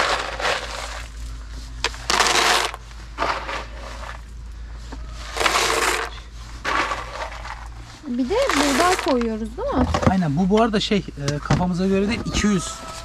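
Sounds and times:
dry feed rattling into container: 0:01.9 - 0:04.2, 0:05.3 - 0:07.6.

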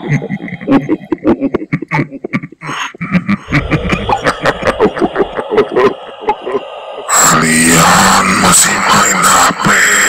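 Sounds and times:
deep ghostly voice growling: 0:03.4 - 0:10.0
deep rumble: 0:03.5 - 0:07.1.

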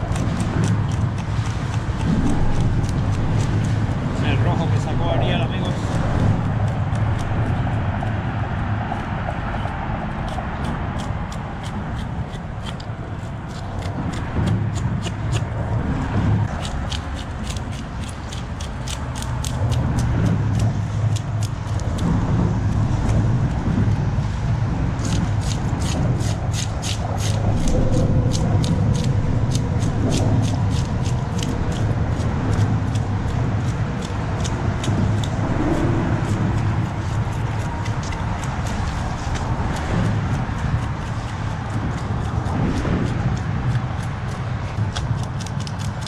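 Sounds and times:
low rumble: 0:00.0 - 0:46.0
knife scraping fish scales: 0:25.0 - 0:39.9.

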